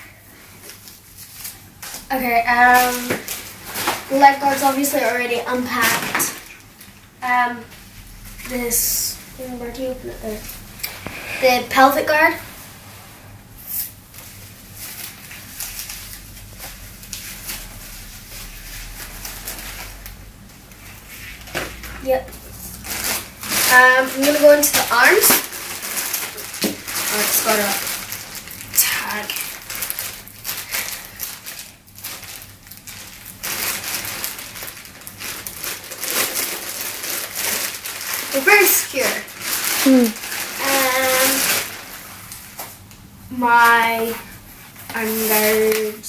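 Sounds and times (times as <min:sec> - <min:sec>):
plastic packaging crinkling: 0:00.5 - 0:12.4, 0:13.7 - 0:43.0, 0:44.0 - 0:46.0.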